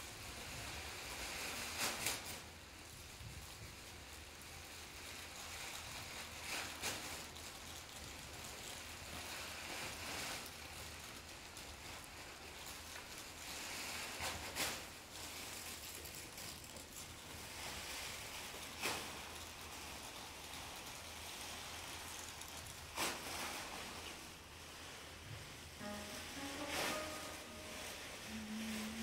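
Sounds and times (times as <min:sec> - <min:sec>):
crackling rustles: 0:00.0 - 0:29.0
faint even hiss: 0:22.9 - 0:29.0.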